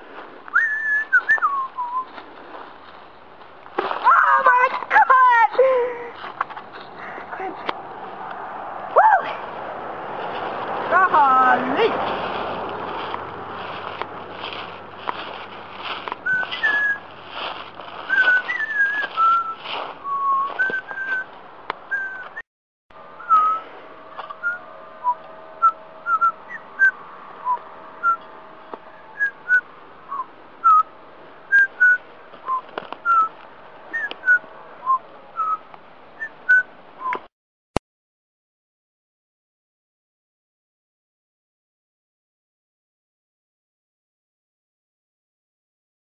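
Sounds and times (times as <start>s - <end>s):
whistled notes: 0.5s - 2.1s, 16.2s - 17.1s, 18.0s - 21.3s, 21.9s - 22.4s, 23.1s - 30.9s, 31.5s - 37.3s
regular rustle: 11.6s - 21.4s.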